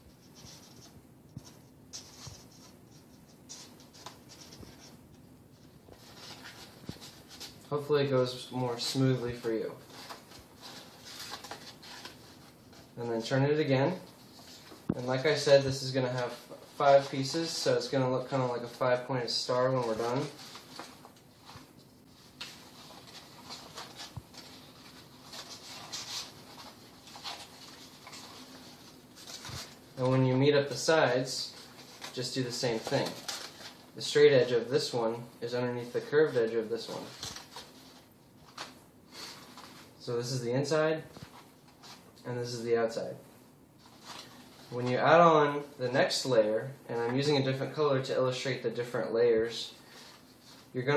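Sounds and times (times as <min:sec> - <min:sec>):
stiff paper rustling and scraping: 0:08.7 - 0:13.0, 0:19.6 - 0:30.3, 0:31.4 - 0:34.0.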